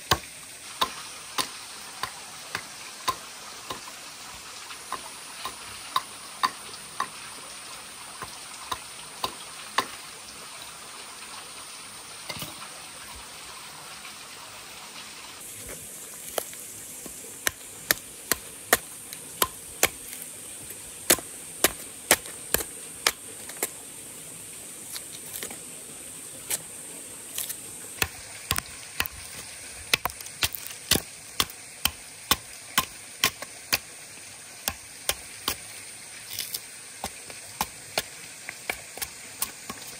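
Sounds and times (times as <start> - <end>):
machete chopping into wooden log: 29.9 - 33.9.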